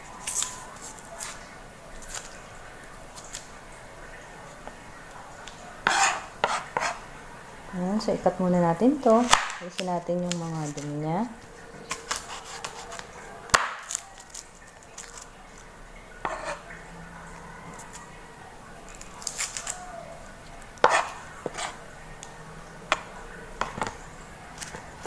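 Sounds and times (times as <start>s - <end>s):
knife cutting on a cutting board: 5.8s - 7.0s, 11.9s - 15.3s, 16.2s - 16.7s, 20.8s - 21.8s.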